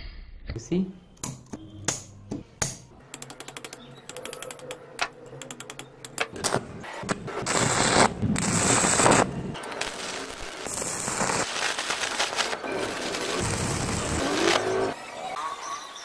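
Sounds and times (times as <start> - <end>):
electric sparks snapping: 6.3 - 15.0
electric arc crackling hiss: 7.0 - 15.0.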